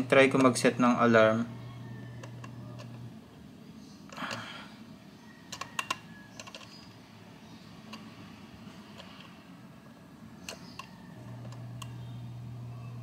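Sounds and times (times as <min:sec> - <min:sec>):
alarm clock dial clicking: 0:02.0 - 0:03.0, 0:05.5 - 0:06.8.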